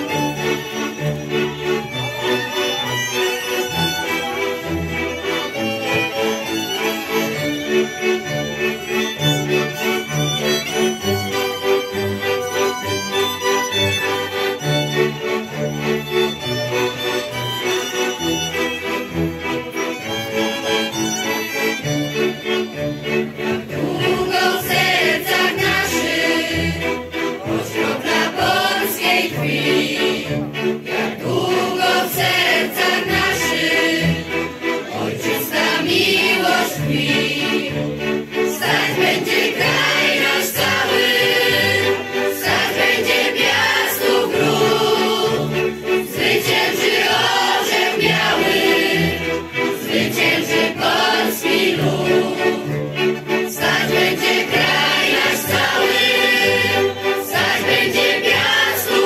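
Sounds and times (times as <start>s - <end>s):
fiddle band playing: 0.0s - 59.0s
choir singing in unison: 23.4s - 59.0s.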